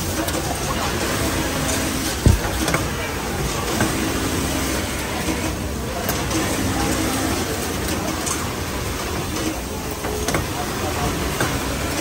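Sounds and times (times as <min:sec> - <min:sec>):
low thump: 0:02.2 - 0:02.6.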